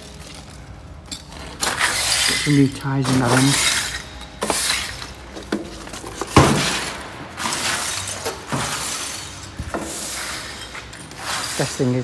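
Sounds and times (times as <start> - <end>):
push broom sweeping rubble on concrete: 6.8 - 12.0.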